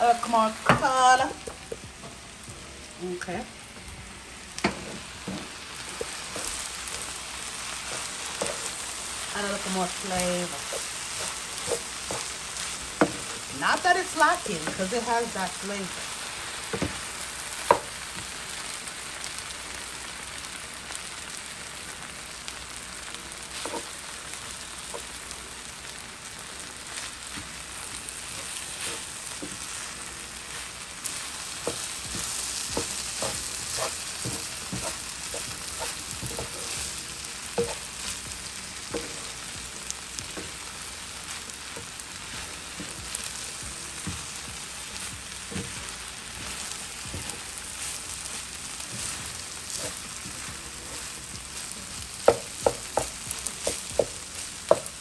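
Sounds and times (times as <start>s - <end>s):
fried rice sizzling in a pan: 0.0s - 55.0s
spatula scraping and knocking pan: 4.6s - 15.4s, 31.0s - 39.4s, 41.7s - 55.0s.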